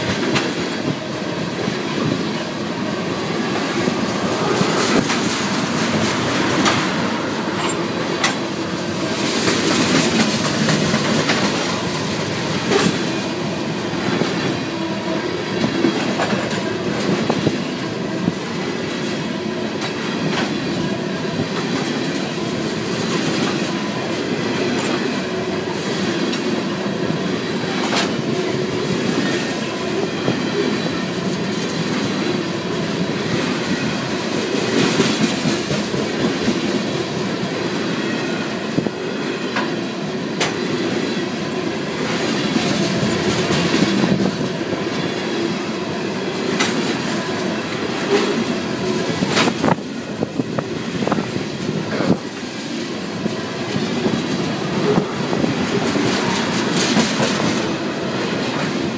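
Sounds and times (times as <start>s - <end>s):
train wheels rumbling on rail: 0.0s - 58.9s
wheels clacking on rail joints: 3.3s - 26.8s, 42.0s - 45.6s, 46.2s - 58.9s.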